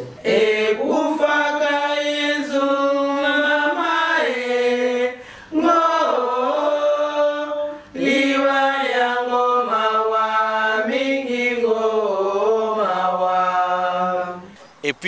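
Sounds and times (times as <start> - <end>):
women singing unaccompanied: 0.0 - 14.6
short breath: 5.2 - 5.5.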